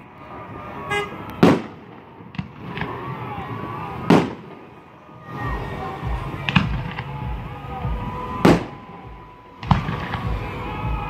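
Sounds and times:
firework booms: 0.9 - 4.8, 5.4 - 9.0, 9.6 - 11.0
small firework pops: 6.4 - 7.3, 9.6 - 10.6.

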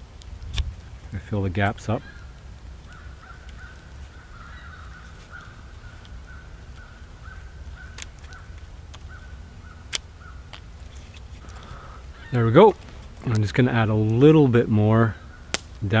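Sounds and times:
animal calling faintly: 2.0 - 10.5.

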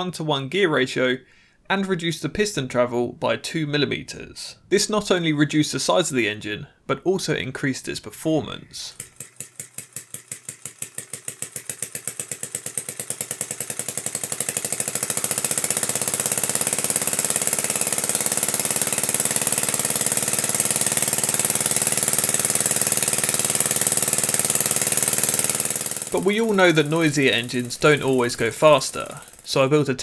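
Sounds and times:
compressed-air engine beating: 8.9 - 29.7.

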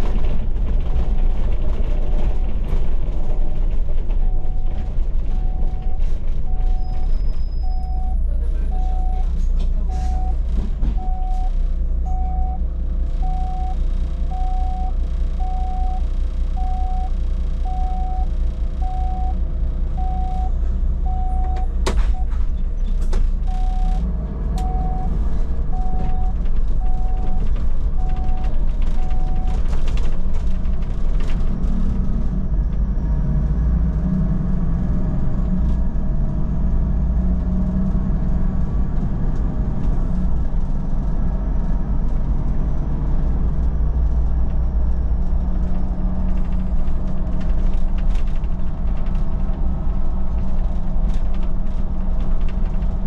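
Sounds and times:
bus engine and road rumble: 0.0 - 53.0
short electronic beeps: 6.5 - 9.3, 11.0 - 12.6, 13.2 - 19.4, 20.0 - 22.3, 23.5 - 24.0.

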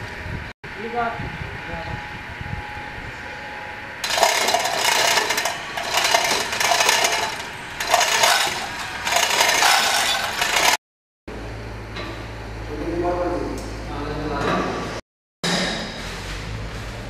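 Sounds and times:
metal chain rattling through hoist: 4.0 - 10.8.

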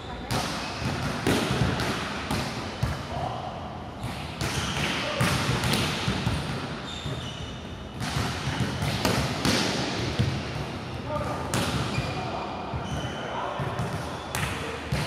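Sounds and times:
balls bouncing on hard floor: 0.2 - 3.0, 8.0 - 12.0.

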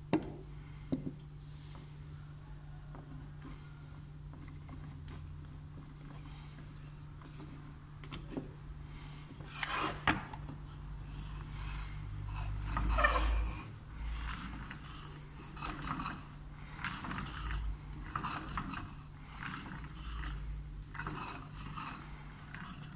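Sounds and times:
wooden gears rattling and scraping: 9.7 - 22.9
wooden wheels rumbling: 12.2 - 20.2.

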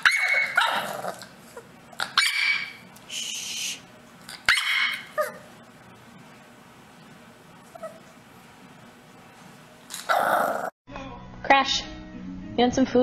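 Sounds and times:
puppy barking and yapping: 0.0 - 2.9, 4.3 - 5.5.

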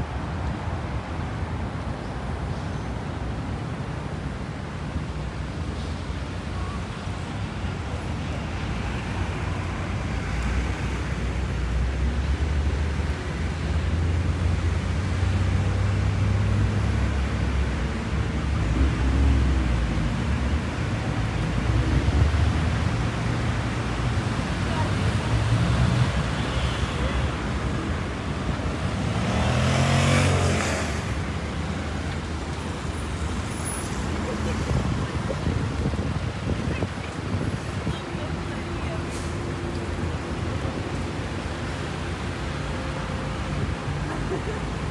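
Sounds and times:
city street traffic hum: 0.0 - 44.9
cars driving past: 4.8 - 44.9
vehicle engine passing by: 24.4 - 32.4.

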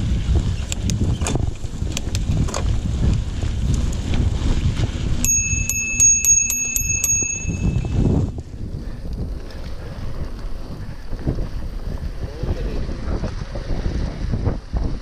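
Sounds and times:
bicycle bell ringing rapidly: 5.2 - 8.3.

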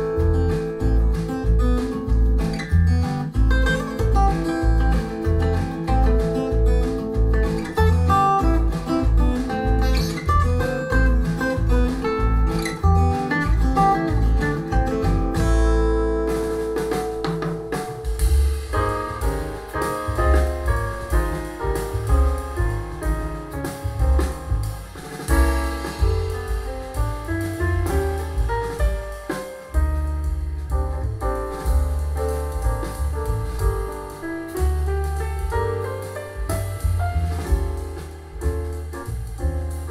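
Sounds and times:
acoustic guitar folk music: 0.0 - 39.9
jazz music: 0.0 - 39.9.

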